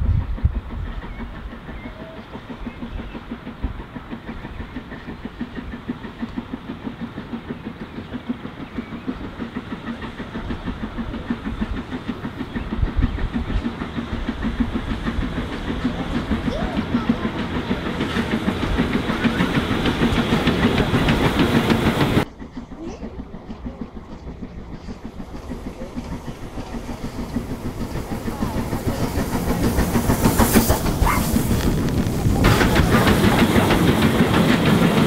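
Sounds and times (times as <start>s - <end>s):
steam locomotive exhaust beats: 0.0s - 35.0s
train coaches clattering on rails: 0.0s - 35.0s.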